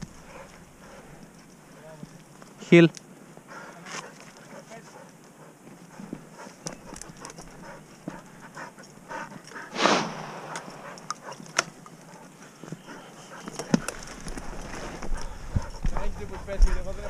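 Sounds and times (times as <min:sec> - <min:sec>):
panting: 0:03.5 - 0:09.7, 0:15.0 - 0:17.0
rush of noise: 0:09.7 - 0:11.3.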